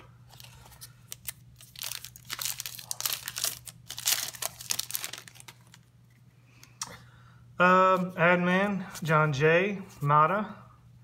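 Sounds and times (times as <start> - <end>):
plastic wrapper tearing and crinkling: 0.3 - 5.9.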